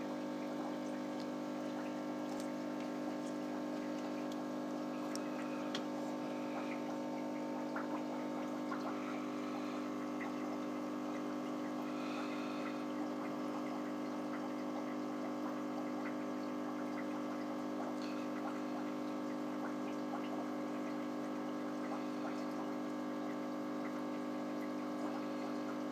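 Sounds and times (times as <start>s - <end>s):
aquarium pump humming: 0.0s - 25.9s
water crackling: 0.0s - 25.9s
small ticks: 0.6s - 5.9s.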